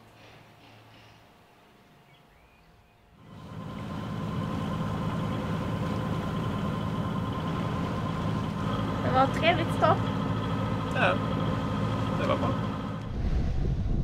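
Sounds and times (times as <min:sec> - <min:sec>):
boat engine running: 0:03.2 - 0:14.0
water noise: 0:03.2 - 0:14.0
wind noise: 0:13.0 - 0:14.0.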